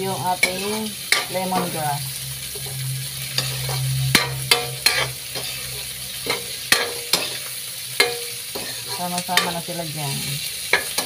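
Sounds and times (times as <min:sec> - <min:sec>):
food sizzling in hot oil: 0:00.0 - 0:11.0
spatula scraping a wok: 0:00.0 - 0:11.0
spatula clacking on pan: 0:03.4 - 0:09.6, 0:10.7 - 0:11.0.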